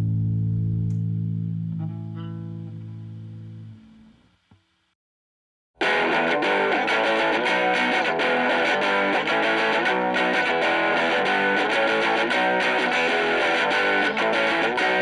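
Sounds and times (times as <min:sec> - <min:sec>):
rock music with electric guitar: 0:05.8 - 0:15.0.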